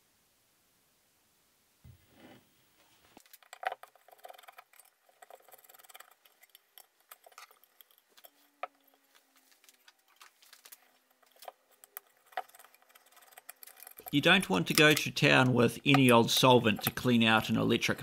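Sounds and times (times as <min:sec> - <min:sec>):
small metallic rattles: 0:03.2 - 0:15.1.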